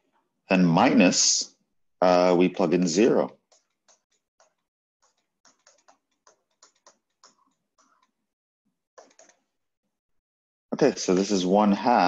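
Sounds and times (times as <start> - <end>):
stylus tapping on tablet screen: 3.3 - 8.4, 9.0 - 9.5.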